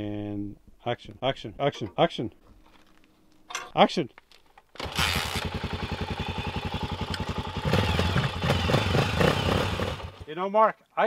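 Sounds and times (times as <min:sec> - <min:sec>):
dirt bike engine idling and revving: 0:04.8 - 0:10.3.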